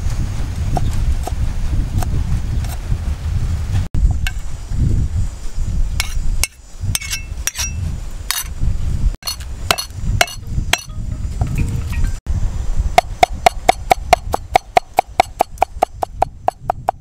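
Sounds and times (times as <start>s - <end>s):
cleaver chopping on wooden block: 13.0s - 17.0s.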